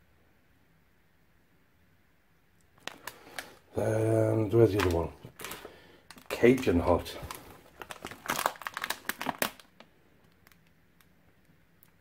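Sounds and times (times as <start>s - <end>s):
plastic pouch crinkling: 2.7s - 11.1s.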